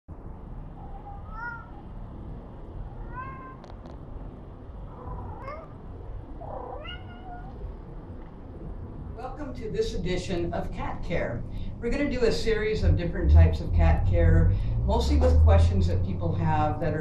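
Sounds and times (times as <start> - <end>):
low background rumble: 0.1 - 17.0
cat meowing: 0.8 - 1.9, 2.9 - 3.8, 4.9 - 7.6.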